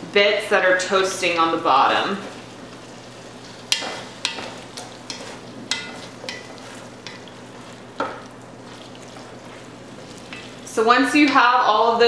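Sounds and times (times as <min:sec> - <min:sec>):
steady sizzle: 0:00.0 - 0:12.0
wooden spatula scraping a pot: 0:03.4 - 0:11.4.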